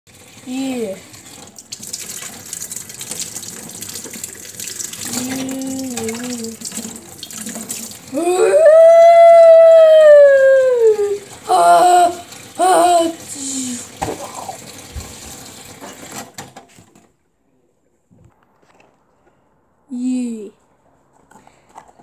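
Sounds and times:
person humming: 5.1 - 6.6, 8.2 - 14.6
person crying out: 8.1 - 14.6
tap running: 13.9 - 17.1.

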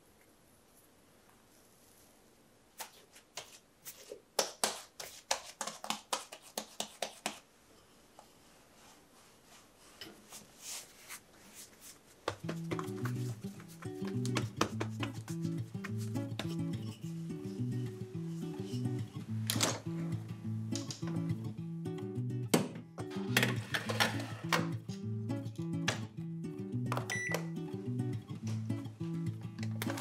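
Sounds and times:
hands rubbing dough: 2.7 - 7.5, 8.4 - 19.4
hands tapping dough on board: 4.4 - 7.4, 12.3 - 15.4
background music: 12.6 - 30.0.

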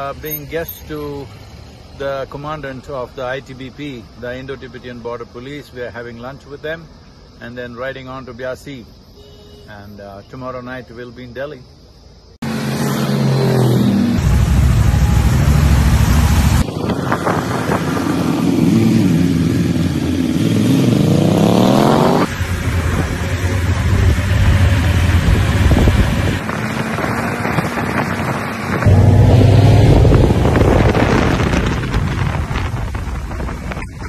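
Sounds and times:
motorcycle engine accelerating: 12.4 - 34.0.

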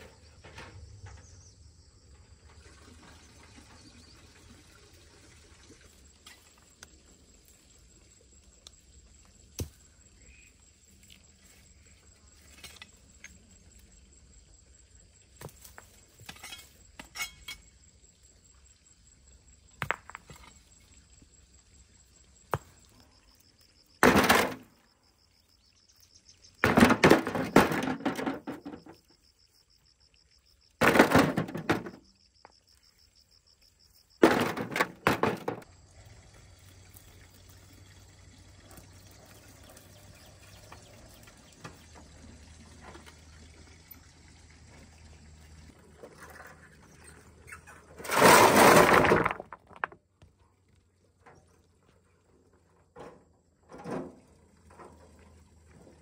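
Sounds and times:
stones crashing into metal wheelbarrow: 15.4 - 17.6, 19.8 - 20.6, 24.0 - 24.8, 26.6 - 29.0, 30.8 - 32.1, 34.2 - 35.7, 47.5 - 50.0.

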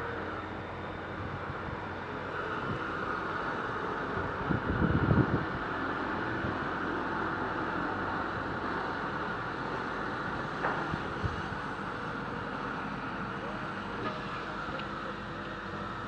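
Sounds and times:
crane engine running: 0.0 - 16.0.

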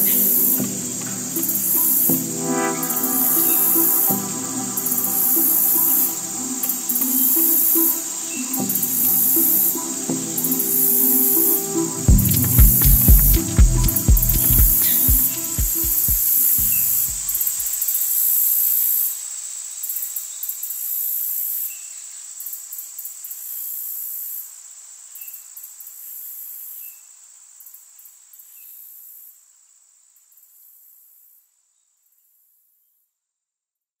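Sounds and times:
high-pitched hissing buzz: 0.0 - 18.3.

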